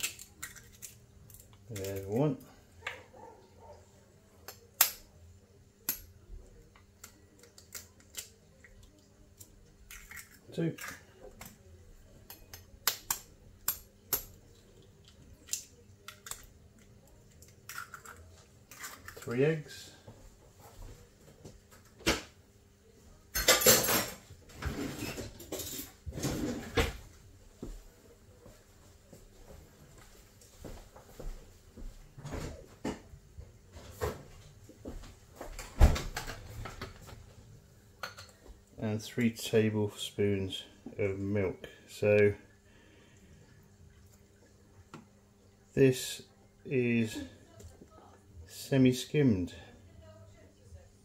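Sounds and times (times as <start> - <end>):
eggshells cracking and tapping: 0.0 - 2.0, 12.2 - 14.4, 15.0 - 19.2.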